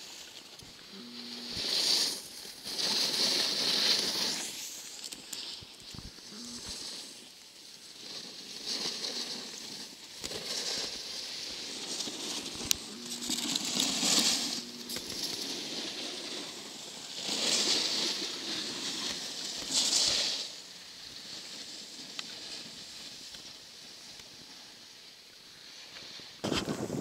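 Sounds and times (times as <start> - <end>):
snowboards scraping snow: 0.0 - 27.0.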